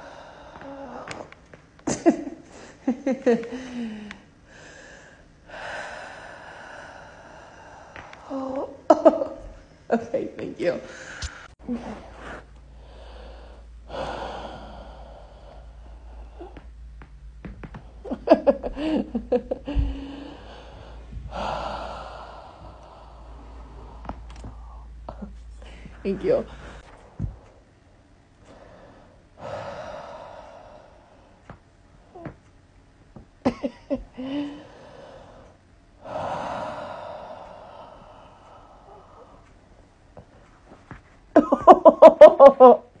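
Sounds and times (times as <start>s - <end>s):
breathy exhale: 10.9s - 16.7s, 19.7s - 27.6s
woman gasping laughter: 18.0s - 20.4s, 41.4s - 42.9s.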